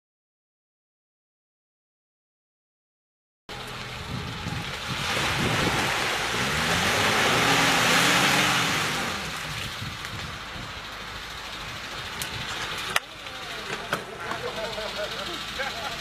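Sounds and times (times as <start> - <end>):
water splashing: 3.5 - 11.4
car engine revving: 3.5 - 16.0.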